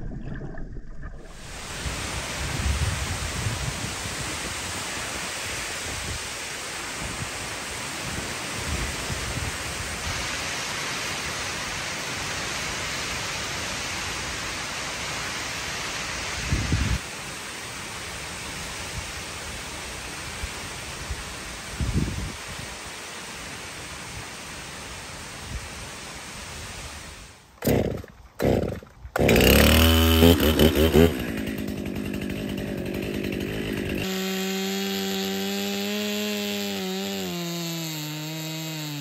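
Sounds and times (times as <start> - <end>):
strong wind through palm trees: 1.5 - 27.4.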